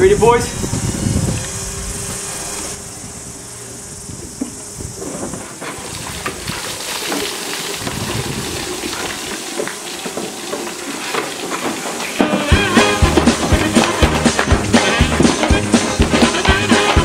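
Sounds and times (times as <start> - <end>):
water pouring and splashing: 4.9 - 17.0.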